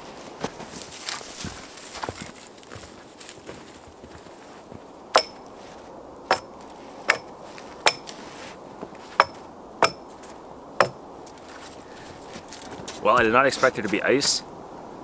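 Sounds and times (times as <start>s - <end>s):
axe striking wooden pole: 5.2s - 5.5s, 6.3s - 8.2s, 9.1s - 10.1s, 10.8s - 11.0s.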